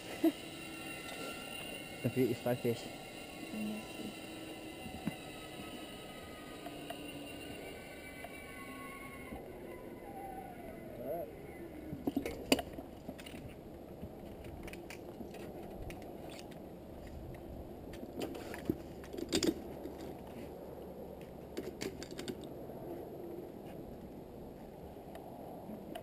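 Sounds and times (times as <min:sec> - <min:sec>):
low background rush: 0:00.0 - 0:18.3
metal carabiners clinking and clicking: 0:19.0 - 0:20.2.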